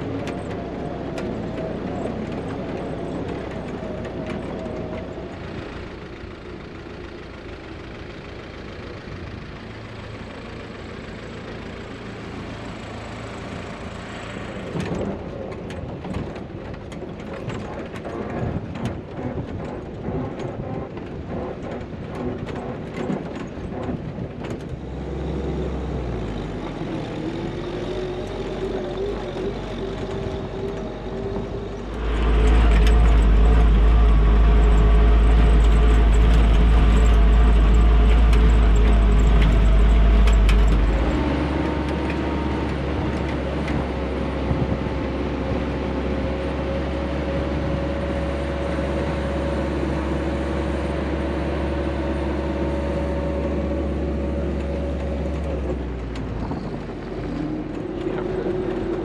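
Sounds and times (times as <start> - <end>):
car engine droning: 0.0 - 59.0
heavy low rumble: 14.3 - 59.0.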